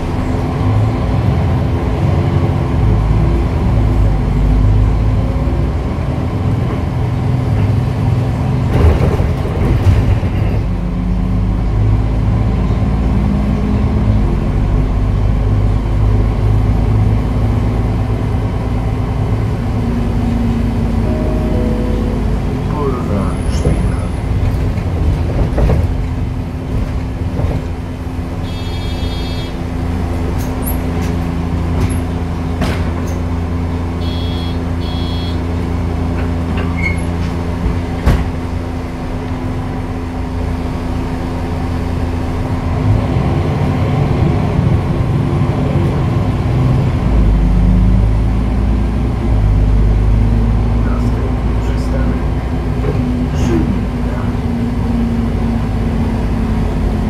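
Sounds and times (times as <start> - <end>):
bus diesel engine running: 0.0 - 57.0
short electronic beeps: 34.0 - 35.4.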